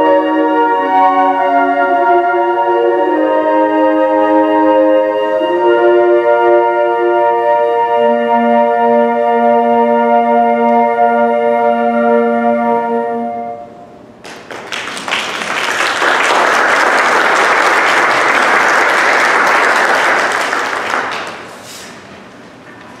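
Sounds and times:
flute choir holding a chord: 0.0s - 14.0s
audience applauding: 14.2s - 21.7s.

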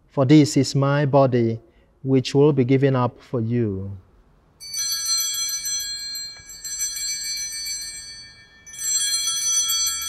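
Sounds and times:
altar bells jangling: 4.6s - 10.0s.

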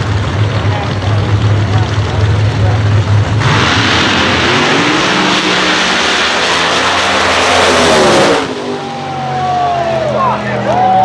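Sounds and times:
race car engines at full throttle: 0.0s - 11.0s
spectators yelling: 8.5s - 11.0s.

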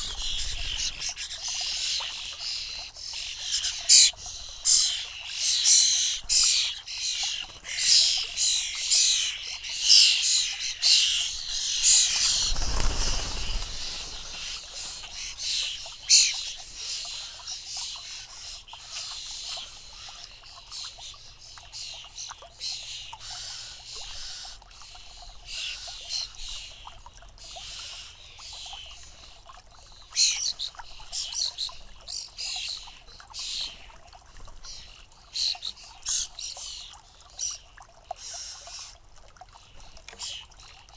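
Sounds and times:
starling fledglings chirping: 0.0s - 21.1s.

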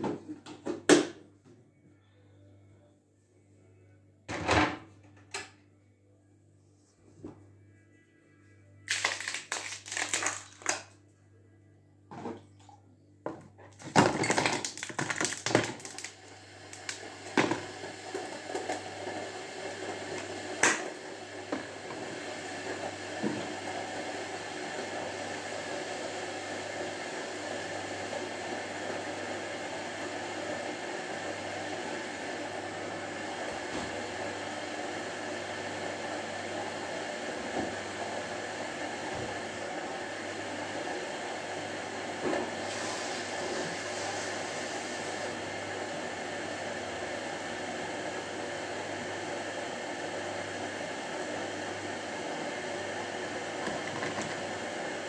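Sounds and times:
kitchen items clattering: 13.8s - 15.9s.

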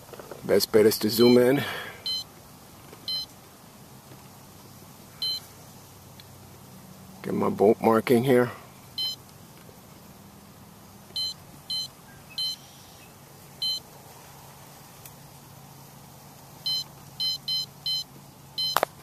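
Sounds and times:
short high beeps: 1.2s - 2.3s, 3.1s - 3.3s, 5.2s - 5.4s, 9.0s - 9.2s, 11.2s - 12.6s, 16.7s - 18.8s.

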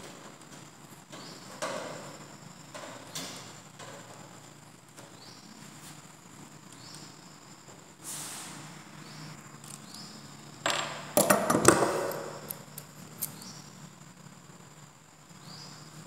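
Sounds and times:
pliers clattering on wooden workbench: 10.6s - 13.6s.

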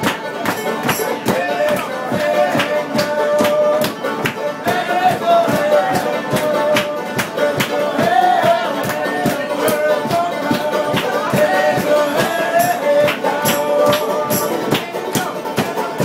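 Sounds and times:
banjo playing: 0.0s - 16.0s.

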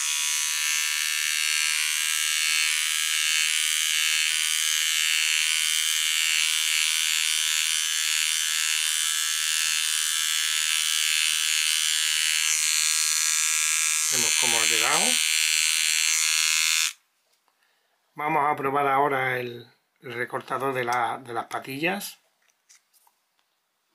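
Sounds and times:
electric trimmer buzzing: 0.0s - 17.0s.

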